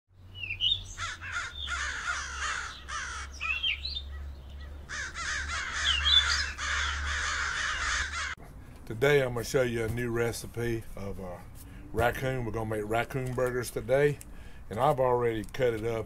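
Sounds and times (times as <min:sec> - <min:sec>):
short rising bird chirps: 0:00.2 - 0:01.8, 0:02.6 - 0:04.7
birds cawing: 0:00.4 - 0:08.4.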